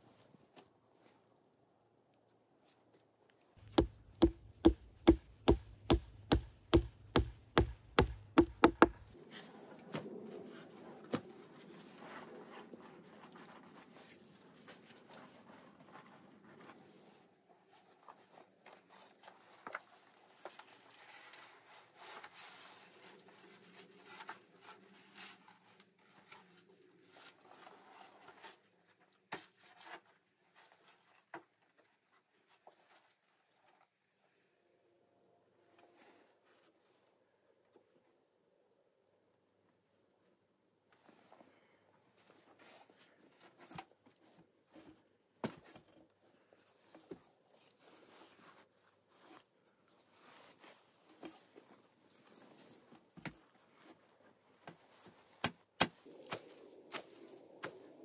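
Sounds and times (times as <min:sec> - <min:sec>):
sharp knocks on wood: 0:03.6 - 0:09.0.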